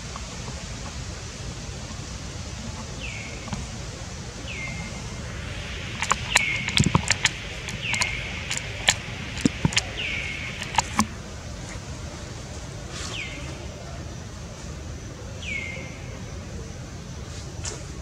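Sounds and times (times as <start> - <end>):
outdoor hiss: 0.0 - 18.0
high whistled call: 5.7 - 11.0
sharp clicks and taps: 5.8 - 11.1.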